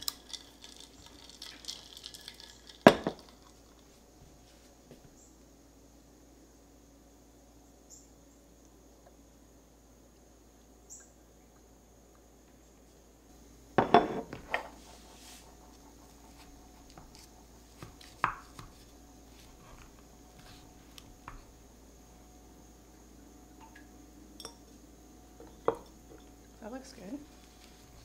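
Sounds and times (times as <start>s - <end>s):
dishware clattering: 2.9s - 3.3s, 13.8s - 14.3s.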